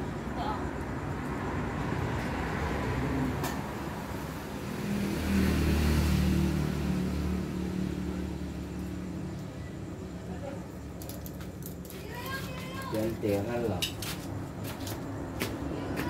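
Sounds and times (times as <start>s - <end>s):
vehicle engine passing by: 0.4s - 11.0s.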